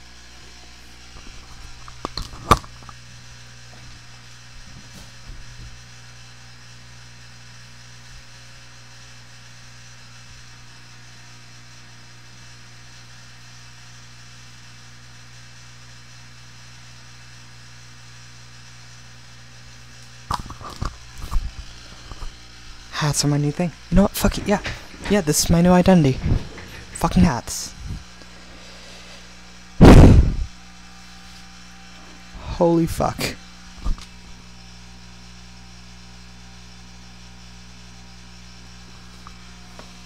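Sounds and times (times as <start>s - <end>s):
low electrical hum: 0.0s - 40.0s
sharp knock: 29.8s - 30.4s.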